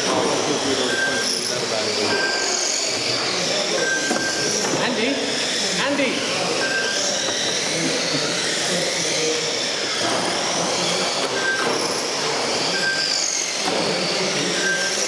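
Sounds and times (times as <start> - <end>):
electric toy car motors whining: 0.0 - 15.0
short timing beeps: 2.1 - 2.6, 3.8 - 4.4.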